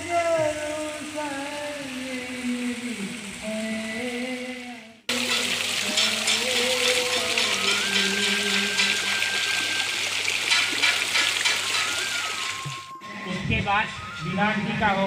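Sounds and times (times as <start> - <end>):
person singing: 0.0 - 9.4
fountain splashing: 0.0 - 12.9.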